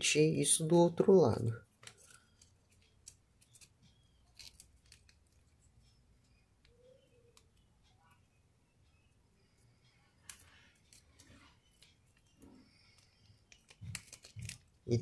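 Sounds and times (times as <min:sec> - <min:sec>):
paper crinkling and creasing: 0:01.8 - 0:05.5, 0:10.3 - 0:15.0.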